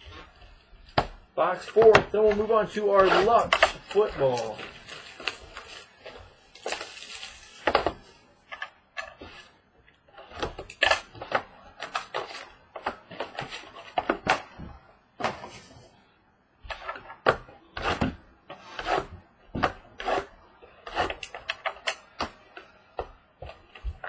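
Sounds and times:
card and wrapping rustling: 0.0 - 15.9
cardboard boxes being opened: 1.8 - 8.0.

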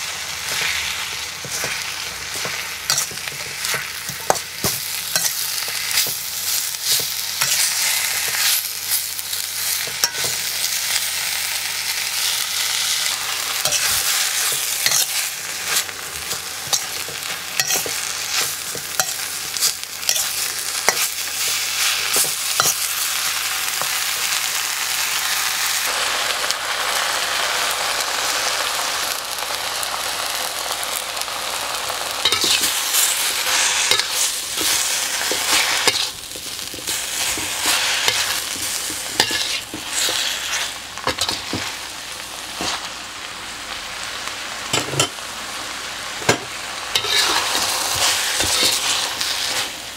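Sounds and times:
spatula scraping a wok: 0.0 - 11.4, 12.0 - 24.3, 32.2 - 41.8, 46.9 - 49.8
oil sizzling in a wok: 0.0 - 49.9.

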